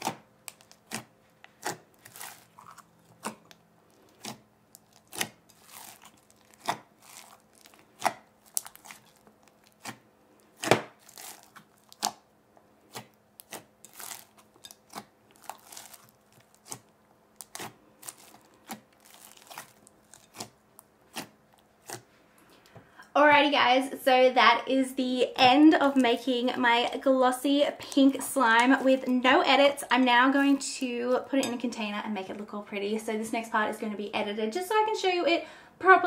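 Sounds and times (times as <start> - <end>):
hands squishing slime: 0.0 - 12.3, 12.9 - 22.1.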